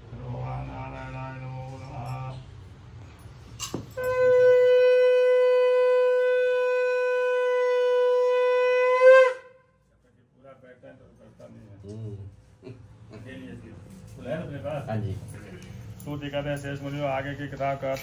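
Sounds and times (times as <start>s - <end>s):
conch shell blown: 3.8s - 9.8s.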